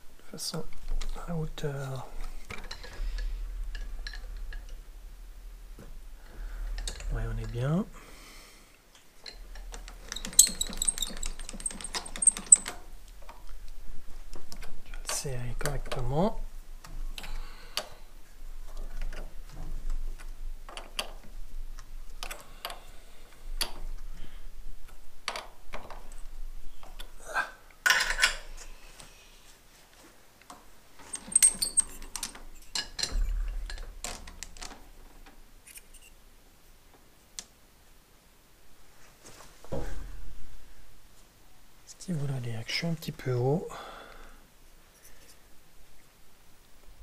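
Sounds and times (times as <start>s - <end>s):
metal clicks and knocks: 2.4s - 4.8s, 6.6s - 7.6s, 9.0s - 13.5s, 18.7s - 22.8s, 27.8s - 28.5s, 30.5s - 35.4s.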